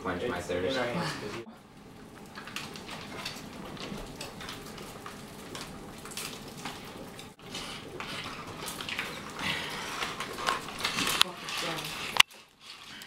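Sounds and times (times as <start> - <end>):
foil pouches crinkling: 1.8 - 13.0
slurping through straws: 7.4 - 13.0.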